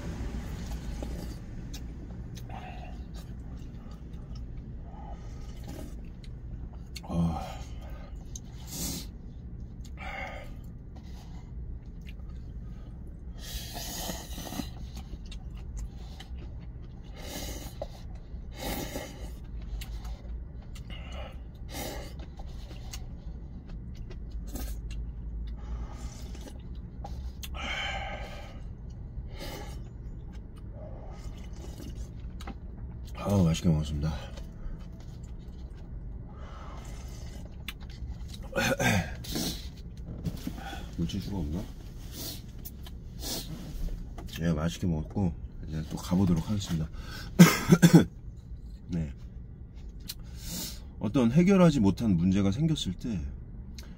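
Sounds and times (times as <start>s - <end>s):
low rumble: 0.0s - 33.2s.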